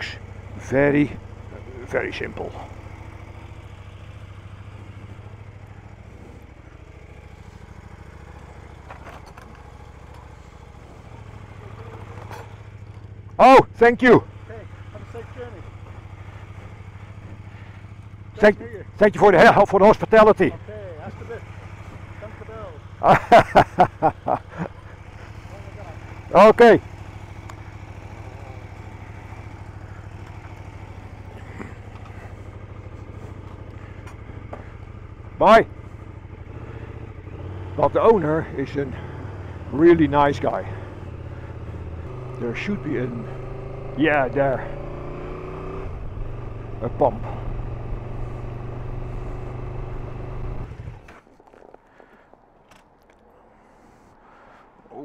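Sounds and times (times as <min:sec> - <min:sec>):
motorcycle engine idling: 0:00.0 - 0:55.0.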